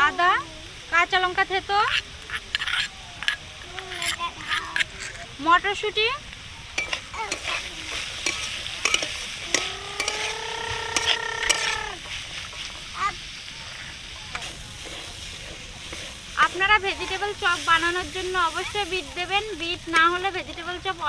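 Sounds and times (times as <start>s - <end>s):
vegetables sizzling in oil: 0.0s - 21.0s
metal spatula scraping a pan: 6.8s - 18.9s.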